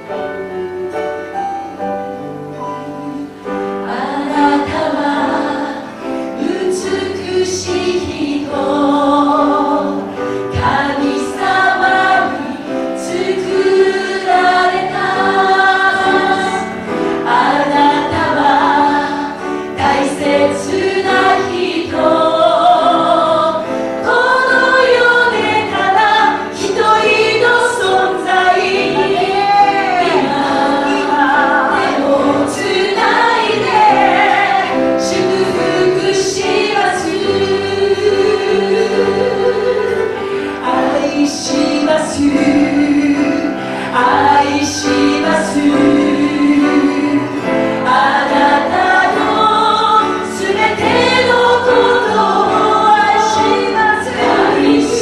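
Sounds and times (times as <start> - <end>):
piano: 0.0 - 55.0
women singing in harmony: 2.5 - 55.0
guitar: 23.5 - 37.8.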